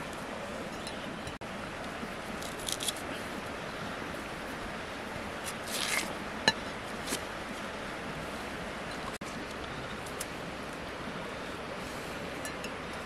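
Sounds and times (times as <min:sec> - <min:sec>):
knife peeling strokes: 0:02.4 - 0:03.1, 0:05.4 - 0:06.1.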